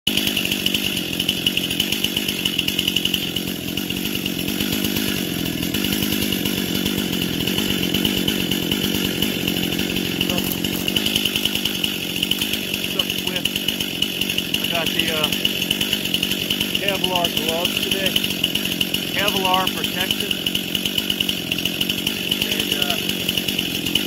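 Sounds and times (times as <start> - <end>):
chainsaw running: 0.1 - 24.0.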